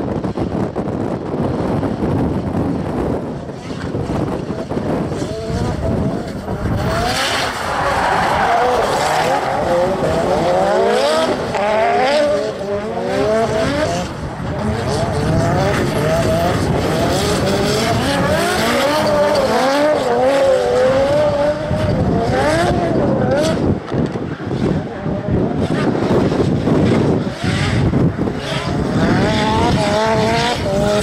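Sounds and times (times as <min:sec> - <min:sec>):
car engines revving: 0:00.1 - 0:31.0
tyres screeching on asphalt: 0:05.3 - 0:23.6.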